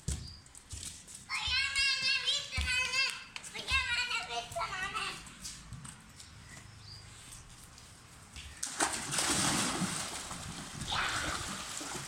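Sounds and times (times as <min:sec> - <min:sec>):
water splashing in paddling pool: 0:08.6 - 0:12.0.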